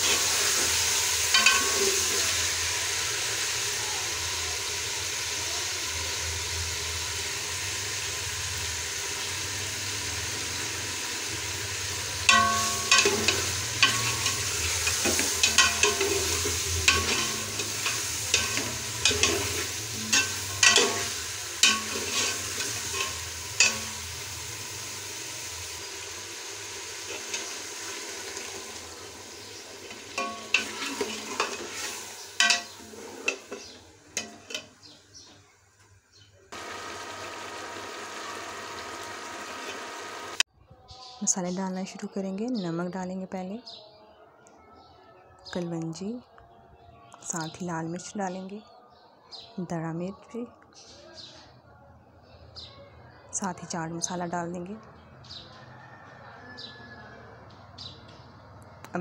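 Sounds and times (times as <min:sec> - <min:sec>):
chicken sizzling in a pot: 0:00.0 - 0:35.8, 0:36.5 - 0:40.5
ladle scraping and knocking pot: 0:12.3 - 0:23.9, 0:29.9 - 0:34.7.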